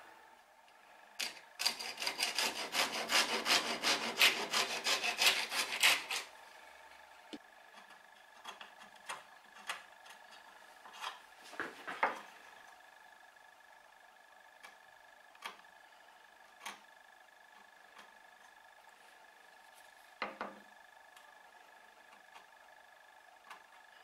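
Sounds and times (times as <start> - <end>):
hand saw cutting wood: 1.2 - 6.3.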